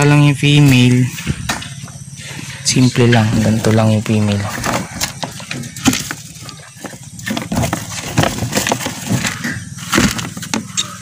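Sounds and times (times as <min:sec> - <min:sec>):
rustling wood shavings: 0:02.2 - 0:11.0.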